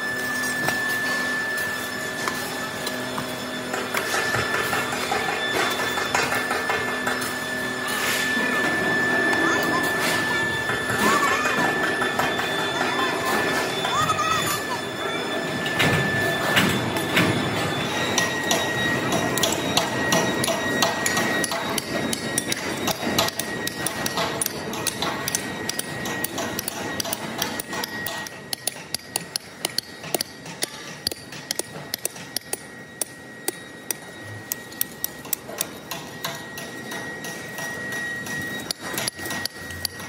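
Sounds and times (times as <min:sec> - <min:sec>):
thin high whine: 0:00.0 - 0:28.5
workshop noise: 0:00.0 - 0:40.0.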